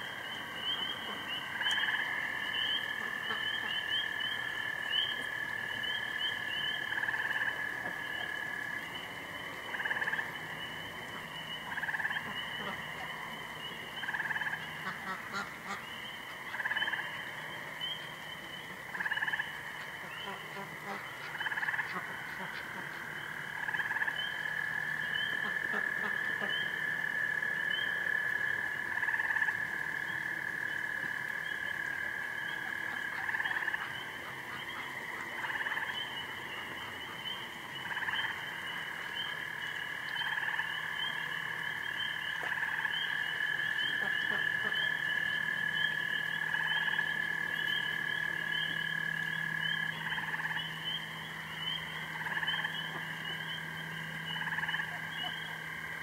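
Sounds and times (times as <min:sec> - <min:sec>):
lower frog calls: 0:00.0 - 0:56.0
frog trilling: 0:11.4 - 0:56.0.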